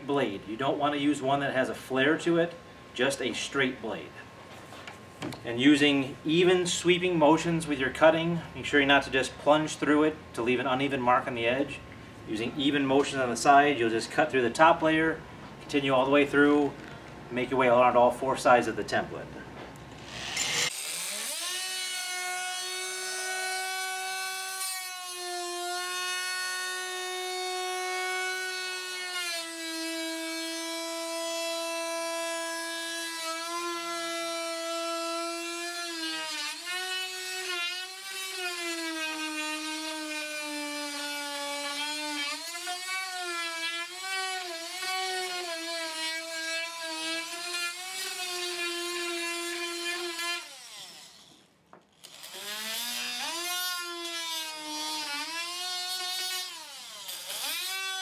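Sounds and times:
oscillating multi-tool cutting wood: 19.9s - 58.0s.

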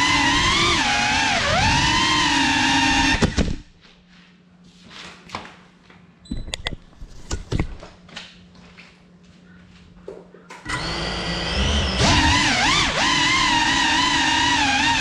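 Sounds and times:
drone motors buzzing whine: 0.0s - 3.7s, 10.6s - 15.0s.

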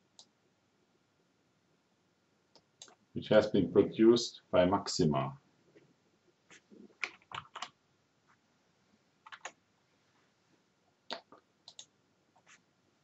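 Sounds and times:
faint keyboard keystrokes: 6.5s - 7.8s, 9.2s - 9.6s, 11.1s - 12.6s.

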